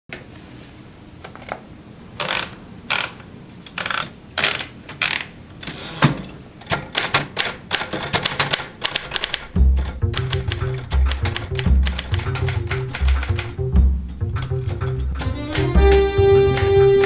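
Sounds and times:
typewriter carriage clatter: 0:03.8 - 0:13.5
typewriter keys clacking: 0:06.6 - 0:13.6.

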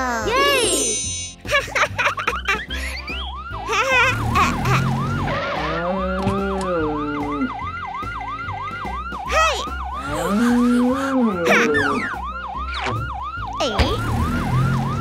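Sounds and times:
cartoon siren yelping: 0:03.1 - 0:07.7, 0:09.1 - 0:15.0
background music with low beat: 0:05.8 - 0:15.0.

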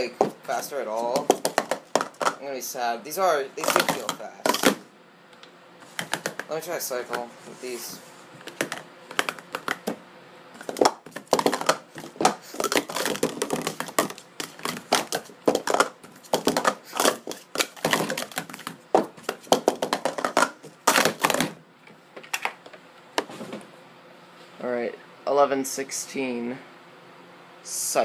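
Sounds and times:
plastic cups clattering: 0:01.0 - 0:02.4, 0:03.6 - 0:04.8, 0:05.8 - 0:06.5, 0:08.4 - 0:10.0, 0:10.6 - 0:21.5.

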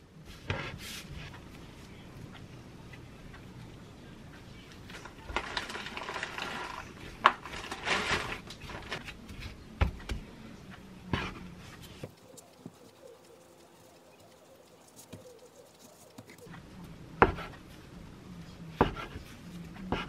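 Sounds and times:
hands kneading dough: 0:04.8 - 0:10.2, 0:11.2 - 0:17.7.

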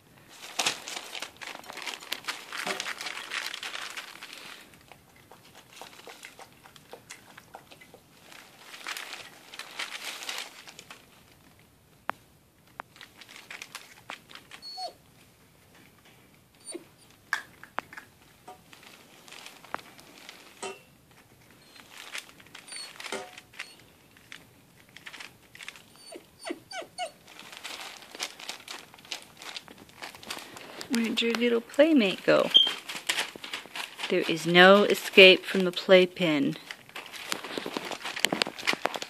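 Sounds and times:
puppy eating from a plate: 0:01.5 - 0:10.5
puppies whimpering: 0:26.0 - 0:27.2.

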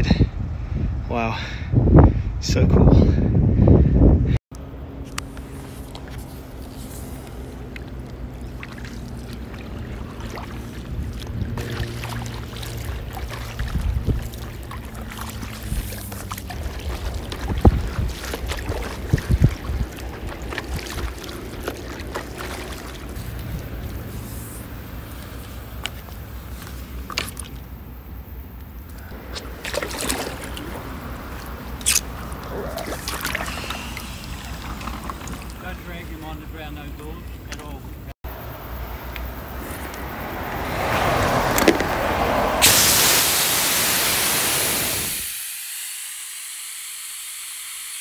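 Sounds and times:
wind rumble on microphone: 0:00.0 - 0:04.4, 0:08.4 - 0:22.3
paddle strokes through water: 0:05.2 - 0:27.8, 0:29.1 - 0:36.3
water splashes and drips: 0:05.2 - 0:38.2, 0:39.1 - 0:45.2.

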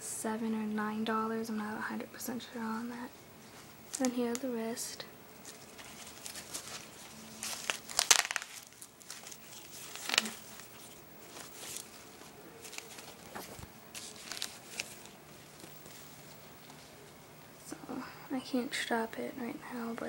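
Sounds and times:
fabric rustling and scratching: 0:05.4 - 0:17.2.

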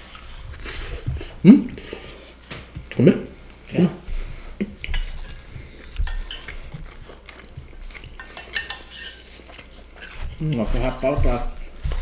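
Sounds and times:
spoons scraping ceramic plates: 0:04.6 - 0:07.0, 0:07.9 - 0:11.3.

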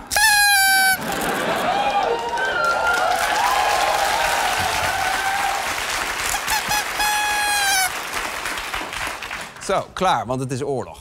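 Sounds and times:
paper party horns tooting: 0:00.0 - 0:01.3, 0:06.2 - 0:08.0
audience applauding: 0:01.0 - 0:09.8.

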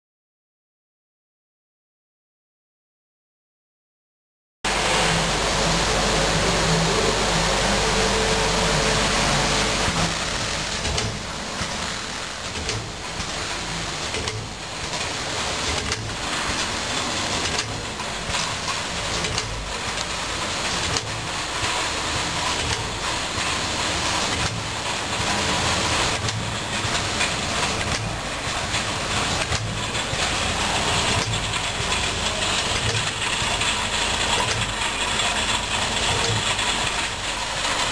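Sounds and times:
machine sealing knock: 0:04.7 - 0:20.2
packaging machine hum and hiss: 0:04.7 - 0:37.9.

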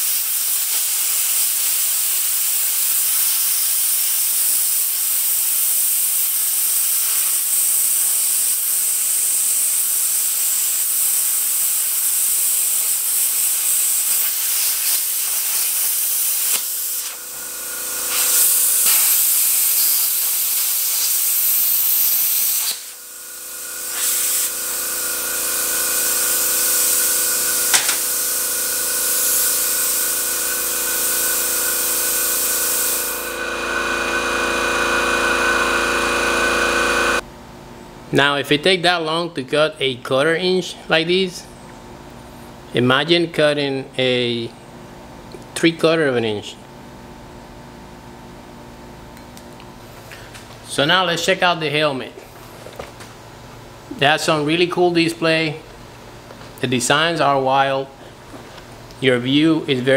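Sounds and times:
plasma cutter arc hissing: 0:00.0 - 0:37.2
machine hum: 0:16.7 - 0:19.8, 0:21.2 - 0:37.4.

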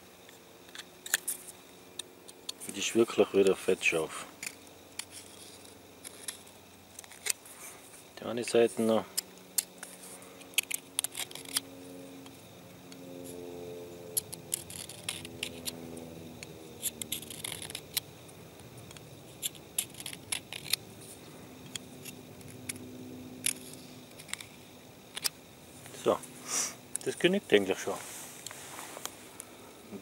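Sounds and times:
knife scraping on sharpener: 0:14.2 - 0:15.8, 0:16.8 - 0:18.0.

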